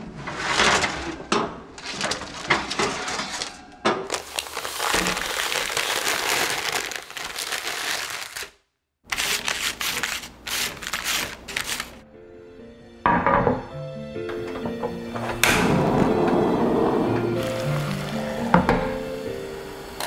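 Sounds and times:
baking parchment crinkling: 1.8s - 12.0s, 17.4s - 18.5s.

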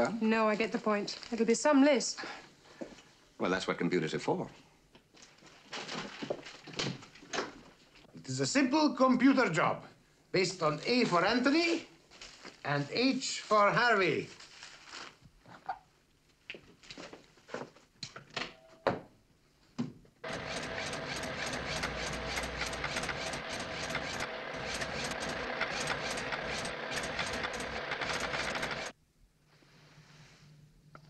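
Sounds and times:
computer mechanical chatter: 20.2s - 28.9s
scattered clicks and rustles: 20.2s - 28.9s.

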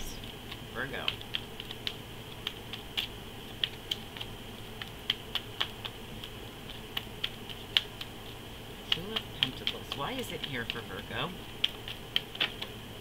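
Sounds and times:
cards being shuffled: 11.6s - 12.8s.

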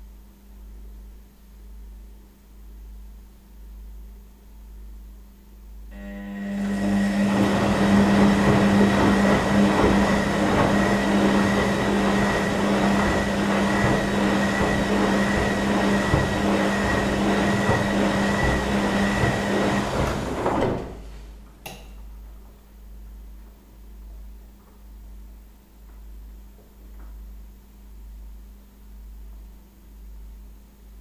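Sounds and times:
washing machine motor humming: 5.9s - 21.7s
laundry sloshing in drum: 6.6s - 21.4s
washing machine click: 7.3s - 22.0s.

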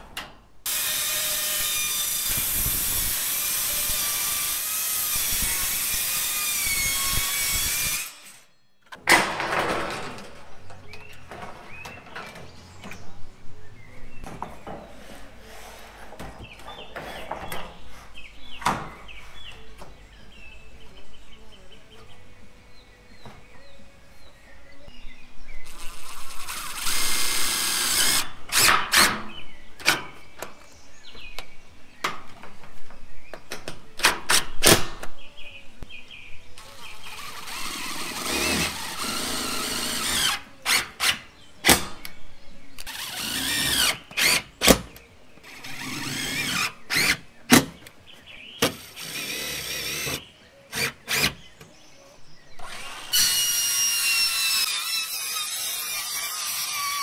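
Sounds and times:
power drill running: 26.4s - 28.3s, 37.1s - 40.4s, 42.9s - 44.4s, 45.6s - 47.2s.

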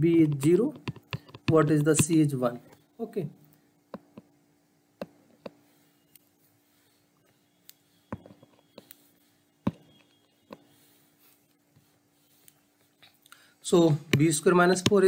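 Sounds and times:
faint steady hum: 0.0s - 15.0s
stylus tapping on tablet: 0.1s - 2.2s, 3.9s - 4.4s, 8.1s - 9.0s, 9.7s - 10.7s, 14.1s - 15.0s.

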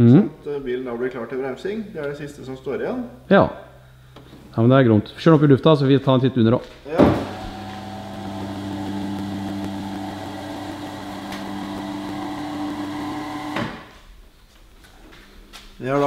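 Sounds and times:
hydraulic pump motor humming: 7.0s - 14.0s.

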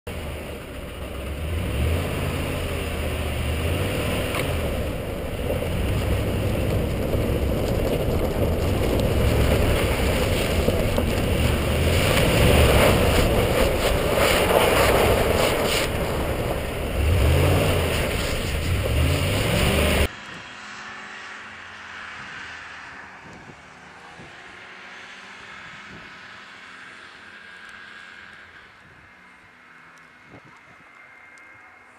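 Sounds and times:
tyre noise: 0.1s - 20.1s
distant engine: 0.1s - 31.9s
engine revving: 0.1s - 31.9s
wind rushing: 4.6s - 20.1s.

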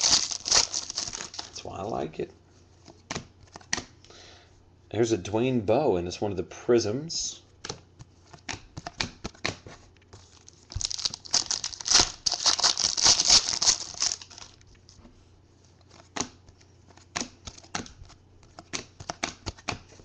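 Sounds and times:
card pack wrapper crinkling: 0.0s - 1.6s, 10.2s - 14.6s.

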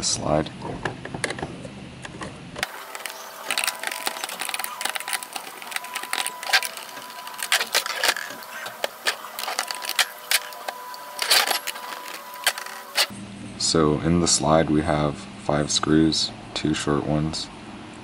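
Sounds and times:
plastic shell handled: 2.6s - 13.1s.

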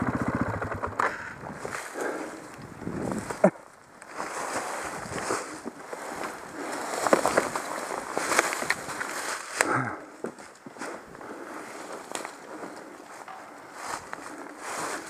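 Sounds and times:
motorcycle knocks and rattles: 0.0s - 1.9s
tyres crunching through dry leaves: 1.6s - 15.0s.

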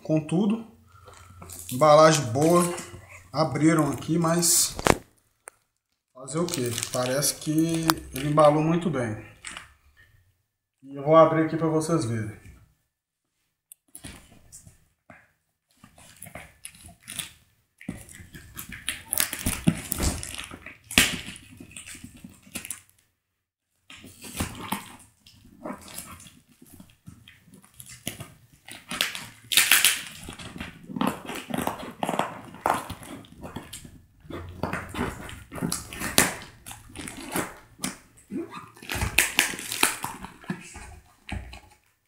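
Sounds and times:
plastic and paper crinkling: 0.9s - 9.7s, 15.7s - 23.0s, 23.8s - 42.0s
loud plastic rips: 3.6s - 8.5s, 15.8s - 23.0s, 23.9s - 41.8s.

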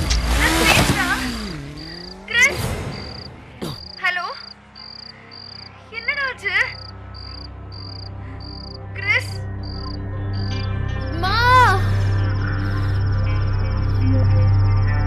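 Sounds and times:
low hum: 0.0s - 15.0s
crickets chirping: 1.3s - 10.7s.

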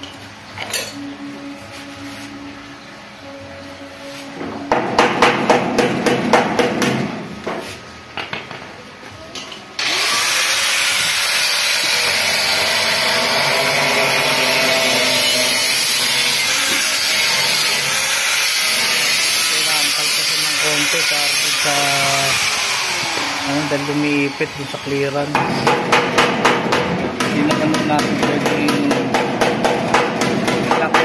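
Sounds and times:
hammer striking steel: 4.6s - 7.2s, 25.3s - 31.0s
power tool running with hiss: 9.8s - 25.6s.

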